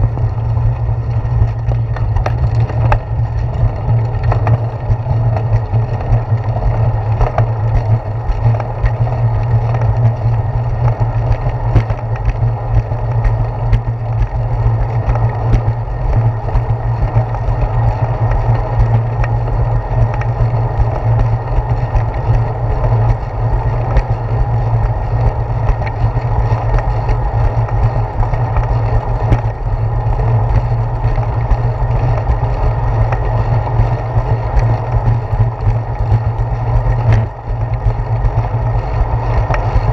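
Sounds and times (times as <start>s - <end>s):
bicycle rolling on concrete: 0.0s - 39.9s.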